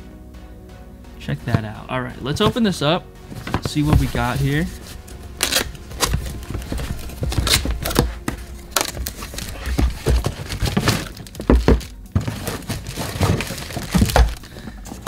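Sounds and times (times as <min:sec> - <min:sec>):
plastic wrap crinkling: 0:03.3 - 0:15.0
cardboard box flaps opening: 0:03.4 - 0:15.0
cardboard insert drawn out: 0:03.5 - 0:14.4
packaging knocking on table: 0:05.5 - 0:14.7.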